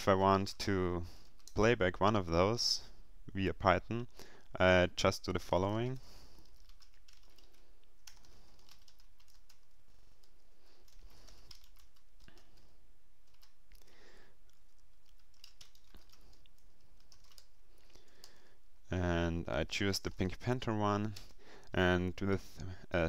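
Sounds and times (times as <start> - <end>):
typing on keyboard: 1.2 - 1.6, 6.3 - 18.4.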